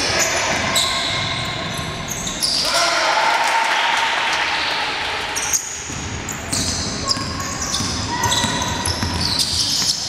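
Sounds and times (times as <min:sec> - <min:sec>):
shoes squeaking on hardwood floor: 0:05.4 - 0:10.0
basketball dribbling thuds: 0:05.9 - 0:10.0.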